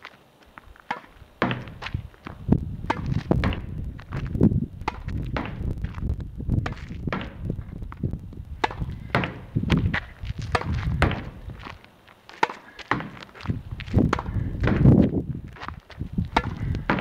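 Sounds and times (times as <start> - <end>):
racket striking tennis ball: 0.8 - 3.8, 4.8 - 5.7, 6.6 - 7.5, 8.6 - 11.4, 12.4 - 13.4, 14.0 - 15.0, 16.3 - 17.0
ball bouncing on hard court: 0.9 - 4.2, 14.0 - 15.0
low rumble: 1.7 - 11.7.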